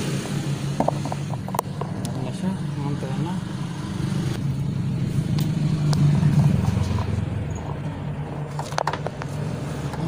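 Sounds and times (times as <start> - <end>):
low engine-like hum: 0.0 - 10.0.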